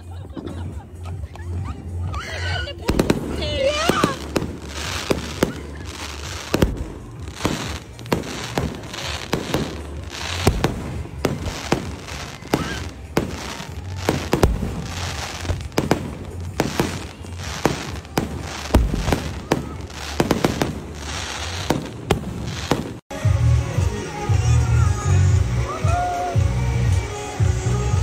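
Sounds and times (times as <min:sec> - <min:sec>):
deep fireworks booms: 0:02.8 - 0:23.0
fireworks bangs: 0:02.8 - 0:23.1.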